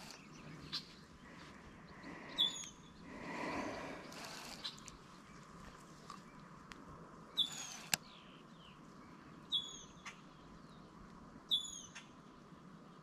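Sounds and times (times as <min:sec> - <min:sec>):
bird calling: 0:00.0 - 0:05.4, 0:07.3 - 0:08.5
faint sharp clicks: 0:04.1 - 0:08.1.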